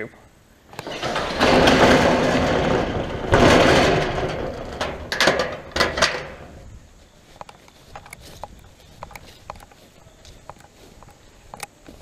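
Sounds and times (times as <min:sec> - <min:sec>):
metal shed door scraping and rattling: 0:00.7 - 0:06.7
metallic latch clicks and knocks: 0:00.8 - 0:06.5.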